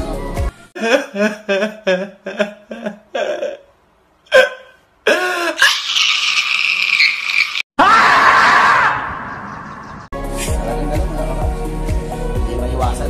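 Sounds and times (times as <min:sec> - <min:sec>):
man sobbing: 0:00.8 - 0:05.8.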